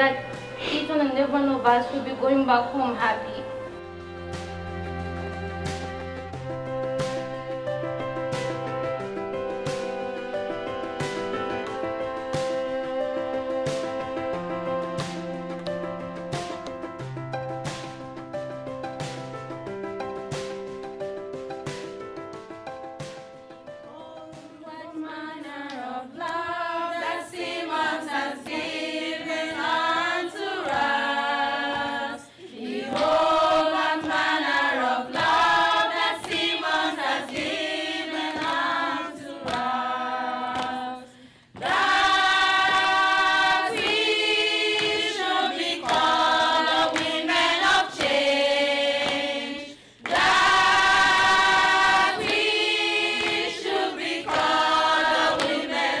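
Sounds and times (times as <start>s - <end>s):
women singing unaccompanied: 23.8s - 56.0s.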